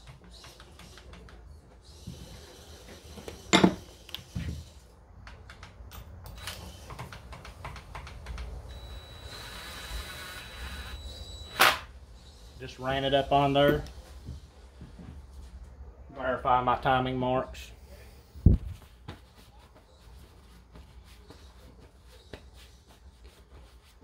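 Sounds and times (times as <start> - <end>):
impact wrench whirring: 8.7 - 11.9.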